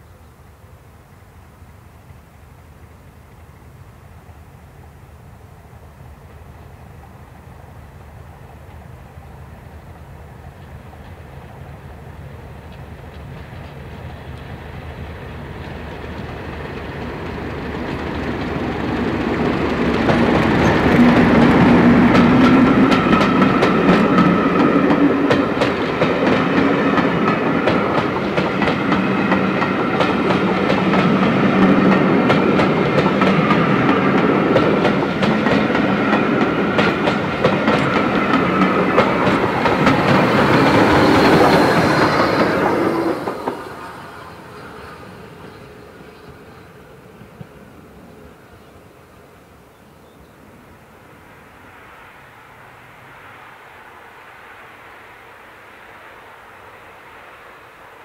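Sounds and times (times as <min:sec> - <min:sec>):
diesel locomotive passing: 0:00.0 - 0:58.0
steam locomotive passing: 0:00.0 - 0:58.0
coaches clattering over rail joints: 0:15.2 - 0:47.6.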